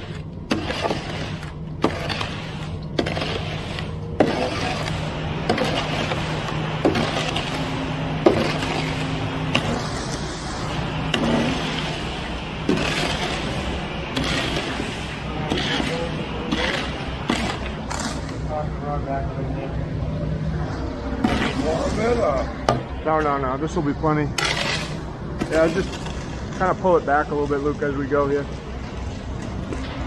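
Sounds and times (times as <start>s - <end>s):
wet concrete sliding down chute: 0.0s - 18.3s, 24.4s - 28.9s
truck engine humming: 0.0s - 29.8s.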